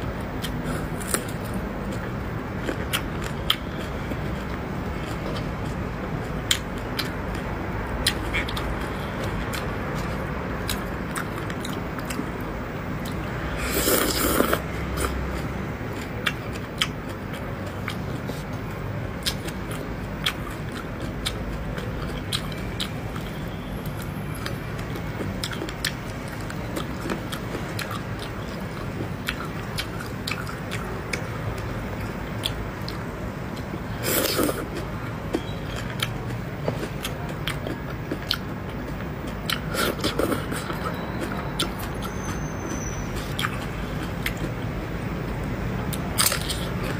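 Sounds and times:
wet chewing and mouth smacks: 0:45.9 - 0:46.9.

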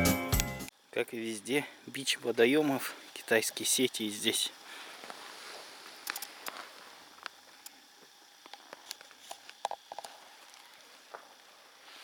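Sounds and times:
light hiss: 0:01.8 - 0:12.0
footsteps crunching on snow: 0:04.8 - 0:07.1.

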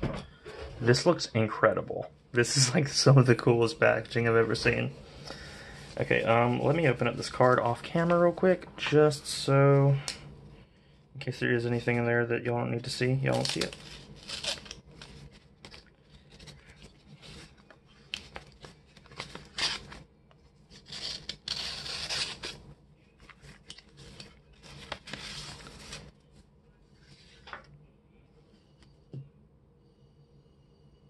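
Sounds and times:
paper rustling and scraping: 0:13.3 - 0:22.6, 0:23.2 - 0:26.4.

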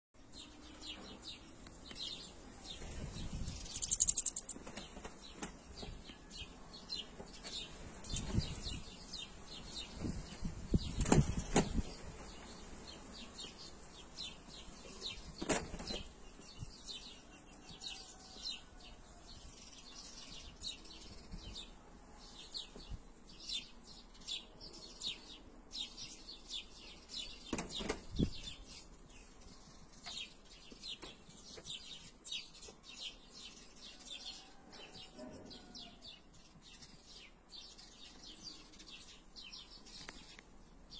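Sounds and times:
finches chirping: 0:03.4 - 0:04.6.

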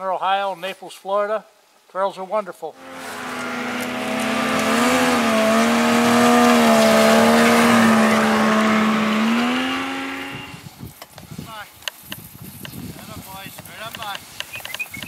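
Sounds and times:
snowmobile engine passing by: 0:02.8 - 0:10.6.

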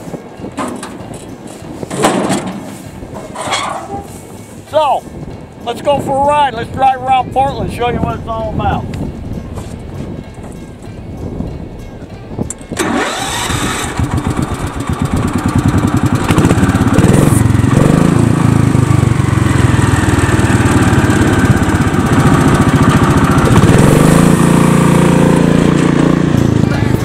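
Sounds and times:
small engine starting up: 0:12.8 - 0:17.4.

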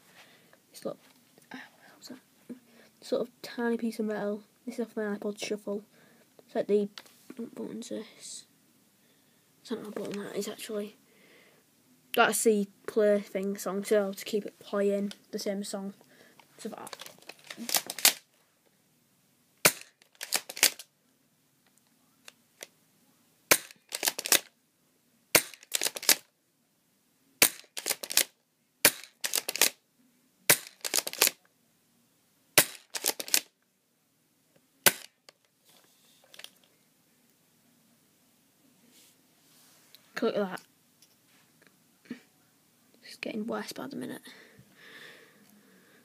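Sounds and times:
bb gun firing snaps: 0:19.6 - 0:20.7, 0:23.5 - 0:24.4, 0:25.4 - 0:26.2, 0:27.4 - 0:28.3, 0:28.9 - 0:29.7, 0:30.5 - 0:31.3, 0:32.6 - 0:33.4, 0:34.8 - 0:35.1.

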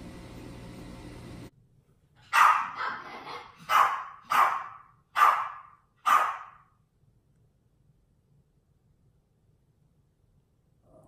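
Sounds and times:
dog barking: 0:02.3 - 0:06.7.

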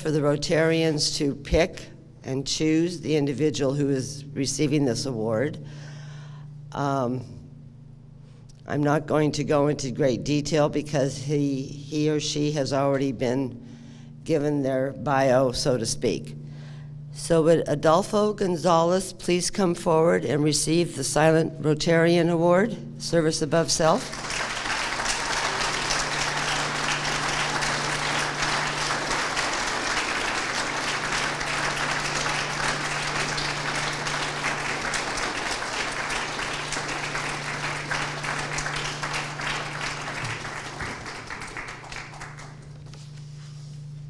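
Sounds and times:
audience applauding: 0:24.0 - 0:42.8.

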